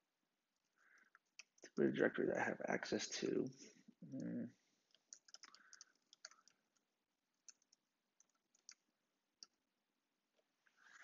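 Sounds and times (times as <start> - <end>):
faint keyboard typing: 0.6 - 1.9, 4.1 - 9.6.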